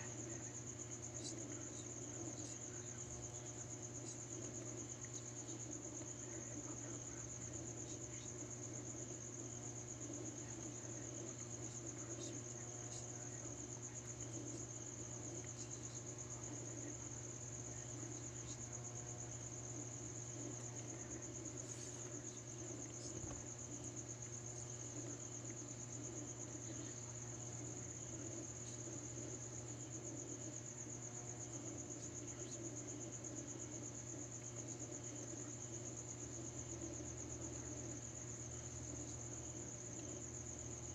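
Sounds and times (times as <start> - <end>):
cricket trilling: 0.0 - 40.9
low steady hum: 0.0 - 40.9.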